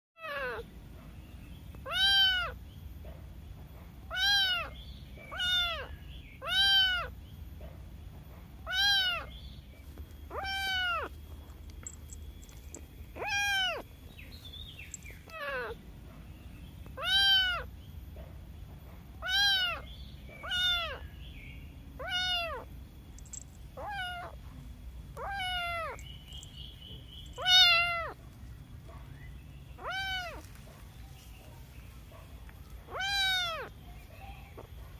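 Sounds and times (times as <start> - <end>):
kitten meowing: 0.2 - 0.6, 1.8 - 2.6, 4.1 - 7.2, 8.6 - 9.3, 10.3 - 11.1, 13.2 - 13.8, 15.2 - 15.8, 17.0 - 17.7, 19.2 - 21.1, 22.0 - 22.7, 23.8 - 24.4, 25.1 - 26.1, 27.4 - 28.2, 29.8 - 30.5, 32.9 - 33.8.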